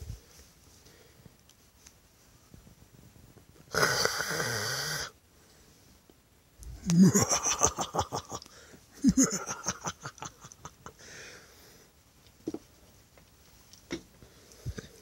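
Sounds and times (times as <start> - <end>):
person laughing: 6.8 - 11.0.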